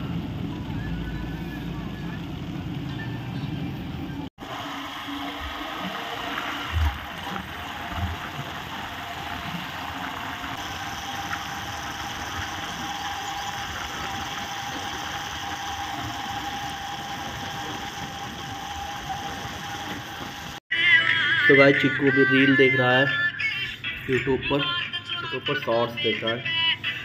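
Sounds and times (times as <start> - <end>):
road and wind noise: 0.0 - 20.6
vehicle engine running: 0.0 - 20.6.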